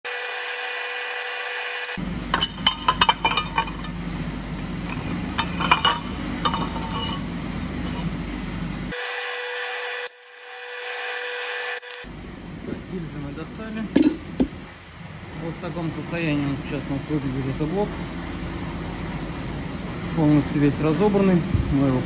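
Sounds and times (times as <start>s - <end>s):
workshop noise: 0.0s - 22.0s
metal clinks and knocks: 2.3s - 4.0s, 4.9s - 7.2s.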